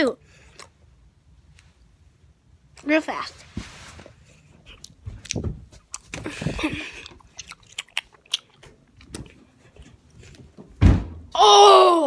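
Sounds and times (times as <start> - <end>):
child chewing gum: 0.4 - 0.9, 4.4 - 10.5.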